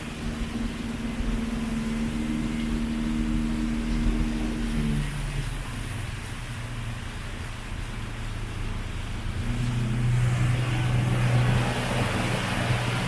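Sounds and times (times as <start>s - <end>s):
boat motor running: 0.0s - 13.0s.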